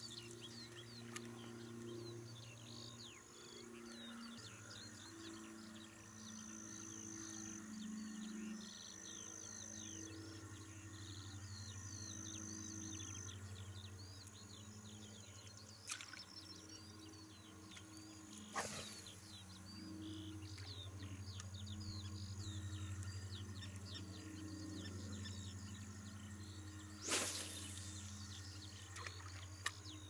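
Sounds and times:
low steady hum: 0.0s - 30.0s
songbirds chirping and whistling: 0.0s - 30.0s
high insect-like trill: 24.8s - 29.7s.

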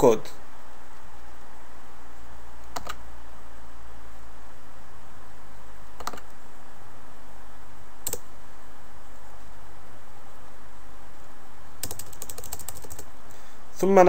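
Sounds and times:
steady background hiss: 0.0s - 14.0s
computer mouse clicks: 2.6s - 3.0s, 6.0s - 6.4s, 8.1s - 8.3s.

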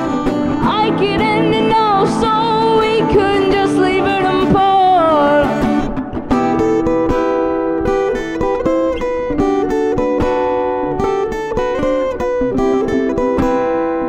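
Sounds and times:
acoustic guitars strummed: 0.0s - 14.0s
boy singing: 0.6s - 5.6s.

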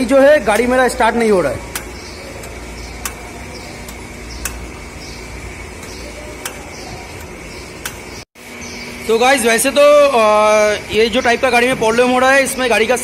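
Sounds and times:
low steady hum: 0.0s - 9.1s
metallic clicks from engine: 0.4s - 8.2s.

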